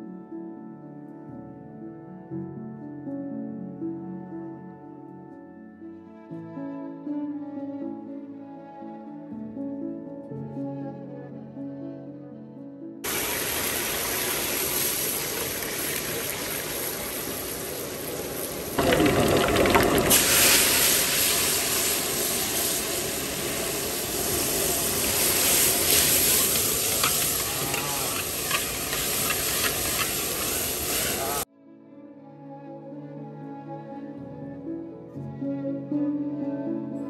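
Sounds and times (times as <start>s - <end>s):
garlic sizzling in hot oil: 13.1s - 31.4s.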